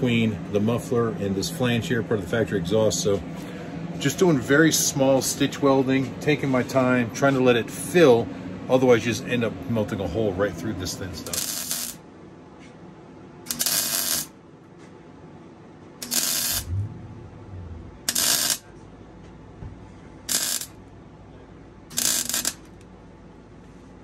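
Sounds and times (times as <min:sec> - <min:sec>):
welding arc bursts: 0:11.3 - 0:12.0, 0:13.5 - 0:14.3, 0:16.0 - 0:16.7, 0:18.1 - 0:18.7, 0:20.3 - 0:20.7, 0:21.9 - 0:22.6.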